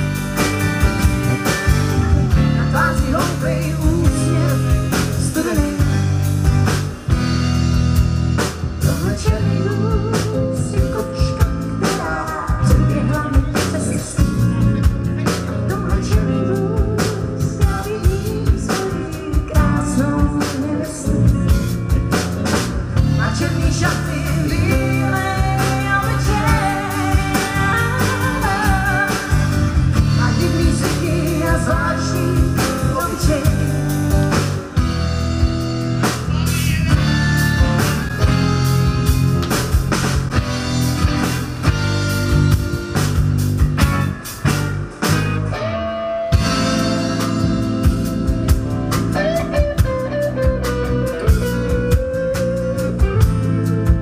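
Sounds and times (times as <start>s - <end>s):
acoustic and electric guitars: 0.0s - 54.0s
bass: 0.0s - 54.0s
drum kit beat: 0.0s - 54.0s
woman singing: 2.4s - 6.3s, 8.9s - 14.8s, 15.5s - 22.1s, 23.1s - 34.6s.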